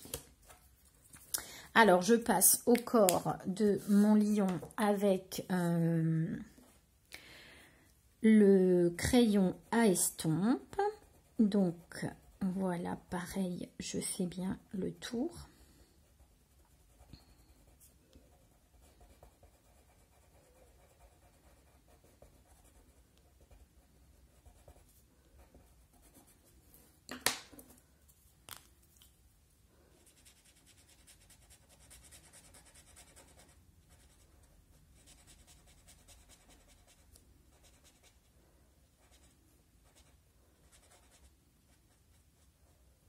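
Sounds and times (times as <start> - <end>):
pen scratching on paper: 16.5 - 26.5, 30.0 - 34.3, 35.0 - 38.2.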